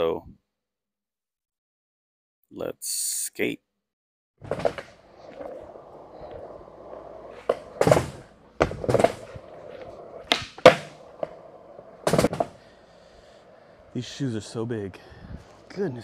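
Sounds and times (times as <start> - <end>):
skateboard clacks: 4.4 - 14.0
skateboard wheels rolling on concrete: 4.4 - 16.0.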